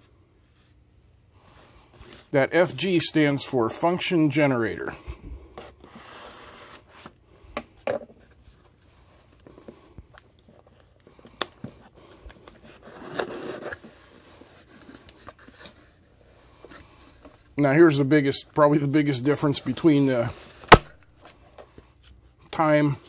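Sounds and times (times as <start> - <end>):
paper sliding on cardboard: 5.7 - 7.1.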